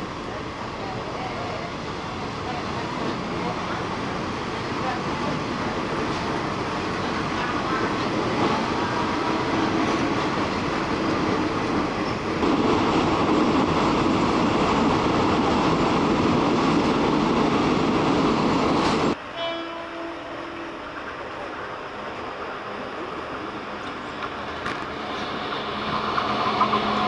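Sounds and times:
train carriage running: 0:00.0 - 0:27.0
train horn: 0:19.2 - 0:20.9.

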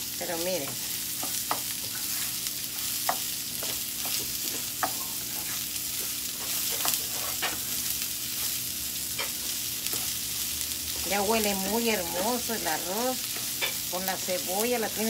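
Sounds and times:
rice and onion sizzling in oil: 0:00.0 - 0:15.0
spoon scraping a pan: 0:00.6 - 0:07.7, 0:13.3 - 0:13.9.

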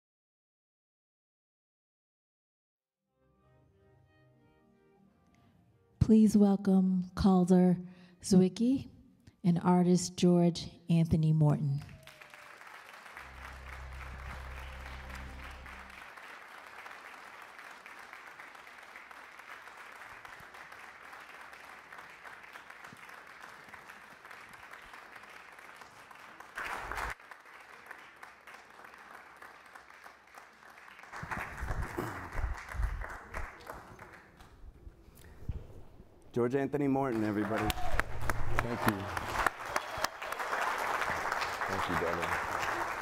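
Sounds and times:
audience applauding: 0:11.8 - 0:34.6, 0:36.8 - 0:43.0
low music: 0:13.2 - 0:16.1.

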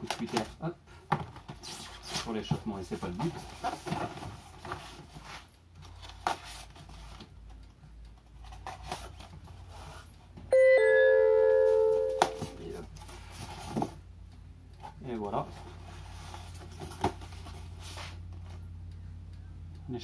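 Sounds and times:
electronic chime: 0:10.5 - 0:12.6.

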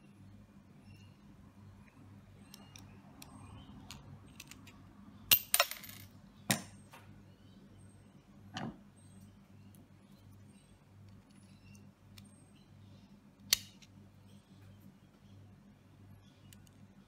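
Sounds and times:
low steady hum: 0:00.0 - 0:17.0
metal lock parts clinking: 0:02.5 - 0:06.7.

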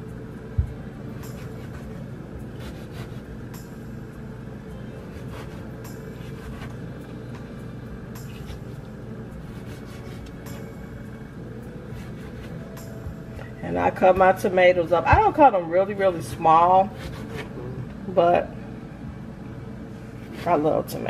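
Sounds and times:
low hum: 0:00.0 - 0:21.0
knife slicing a tomato: 0:01.2 - 0:03.3, 0:05.0 - 0:06.8, 0:09.4 - 0:10.7, 0:11.9 - 0:12.8, 0:16.9 - 0:17.6.

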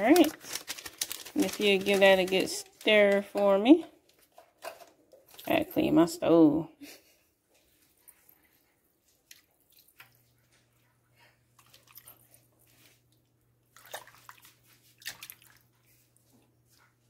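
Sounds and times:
liquid splashing: 0:13.7 - 0:16.0.

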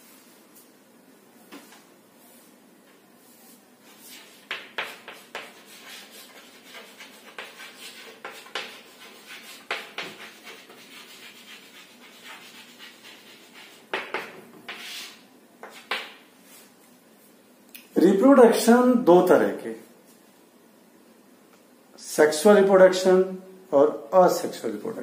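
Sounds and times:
chalk writing on chalkboard: 0:03.5 - 0:16.6.

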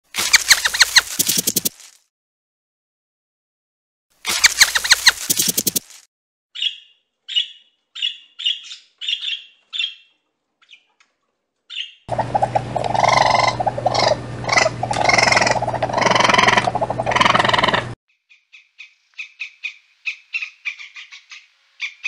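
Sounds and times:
rabbit squeaking: 0:00.2 - 0:01.8, 0:04.3 - 0:05.9, 0:11.7 - 0:18.0
parrot harsh chattering calls: 0:04.4 - 0:05.3, 0:11.7 - 0:18.0.

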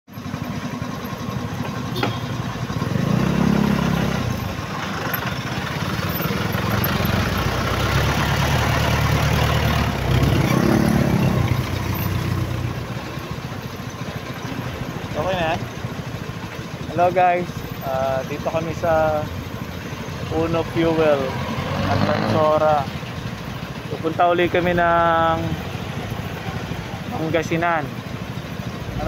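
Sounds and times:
motorcycle engine idling and revving: 0:00.1 - 0:29.0.

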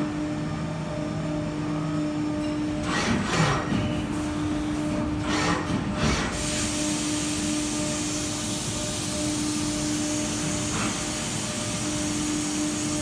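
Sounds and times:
coolant spray hiss: 0:06.4 - 0:13.0.

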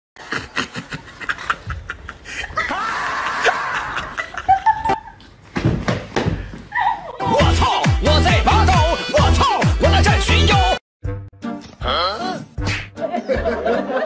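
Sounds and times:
young woman laughing: 0:00.2 - 0:05.2, 0:06.7 - 0:07.2.

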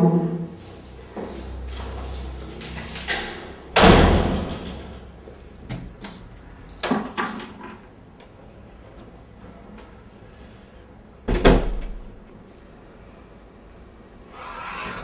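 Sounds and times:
glass door banging shut: 0:03.2 - 0:04.8.

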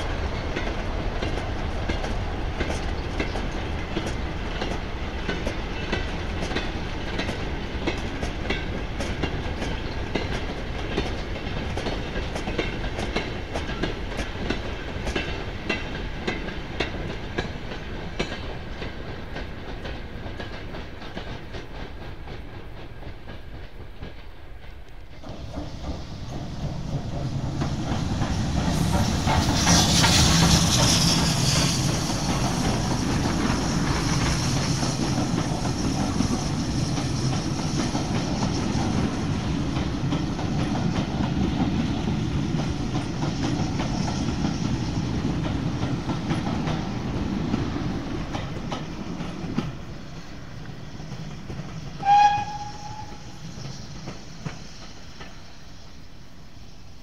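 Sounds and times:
train rumble: 0:00.0 - 0:57.0
wheel clickety-clack: 0:00.3 - 0:49.9
steam hiss: 0:25.1 - 0:57.0.

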